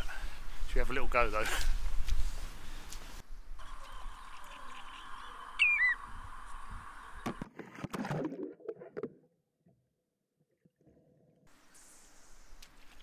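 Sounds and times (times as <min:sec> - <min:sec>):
outdoor background: 0:00.0 - 0:13.0
bird whistling call: 0:05.6 - 0:06.0.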